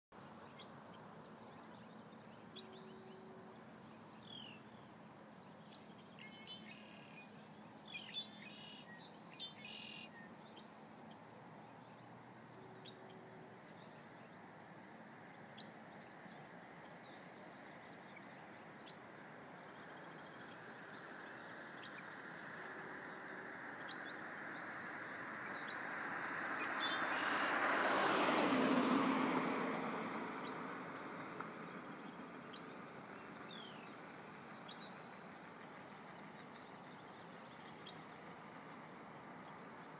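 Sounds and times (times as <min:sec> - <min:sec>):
small birds chirping: 0:00.2 - 0:22.8, 0:23.7 - 0:27.6, 0:31.2 - 0:39.9
steady outdoor hiss: 0:00.2 - 0:39.9
vehicle passing on road: 0:19.0 - 0:34.7.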